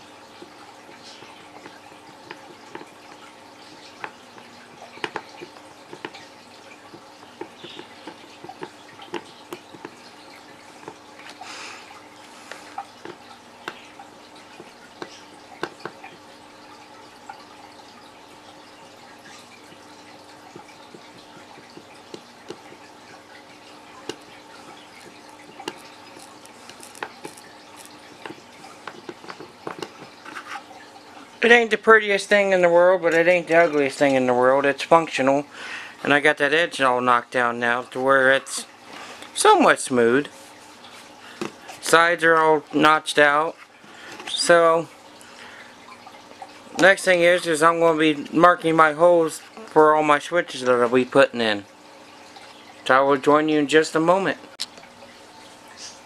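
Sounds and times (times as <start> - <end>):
soldering iron crackling on plastic: 23.9 - 30.6.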